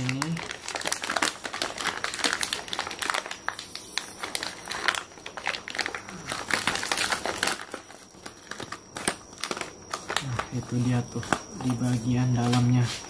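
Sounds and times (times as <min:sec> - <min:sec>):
plastic pouch crinkling: 0:00.0 - 0:13.0.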